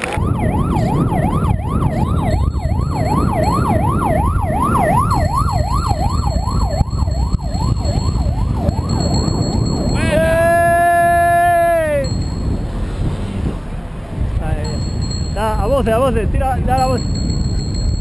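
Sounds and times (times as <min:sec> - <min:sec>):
siren yelping: 0:00.0 - 0:12.1.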